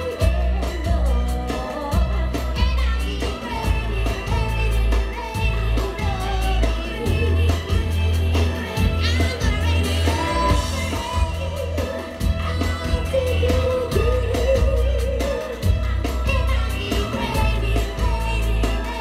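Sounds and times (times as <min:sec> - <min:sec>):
live pop band with woman singing: 0:00.0 - 0:19.0.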